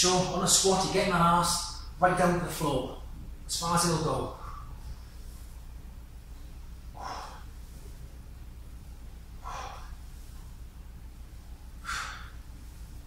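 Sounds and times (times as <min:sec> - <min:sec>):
steady low hum: 0:00.0 - 0:13.0
man exhaling sharply: 0:11.8 - 0:12.5.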